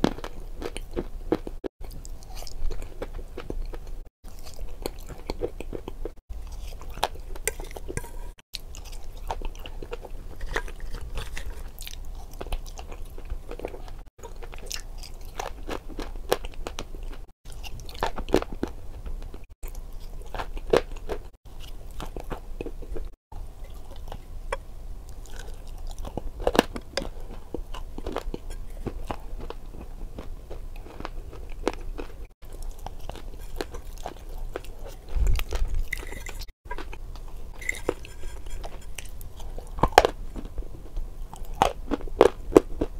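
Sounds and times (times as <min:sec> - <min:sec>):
chewing crunchy food: 0:00.0 - 0:42.9.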